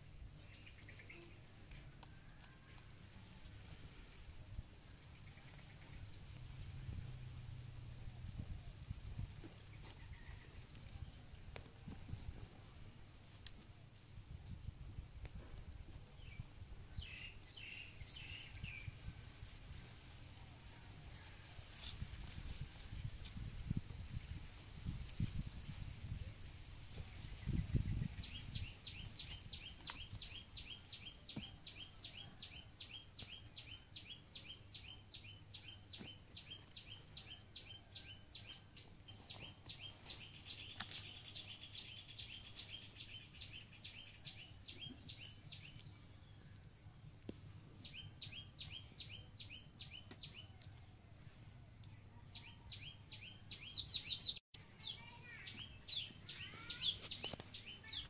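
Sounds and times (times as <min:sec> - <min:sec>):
bird chirping: 0:27.1 - 0:46.9, 0:47.8 - 0:50.8, 0:51.8 - 0:58.0.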